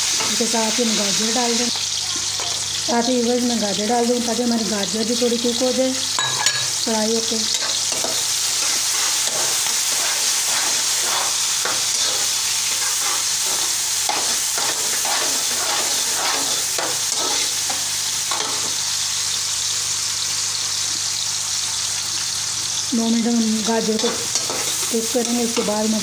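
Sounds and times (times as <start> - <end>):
vegetables sizzling in a wok: 0.0 - 26.0
metal spatula scraping a wok: 7.5 - 18.7, 24.0 - 25.8.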